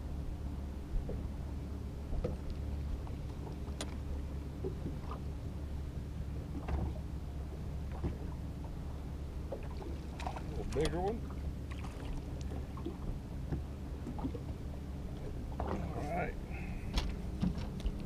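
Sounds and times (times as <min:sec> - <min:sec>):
faint hum: 0:00.0 - 0:18.0
wind and water rumble: 0:00.0 - 0:18.0
faint clicks and knocks: 0:02.2 - 0:04.0.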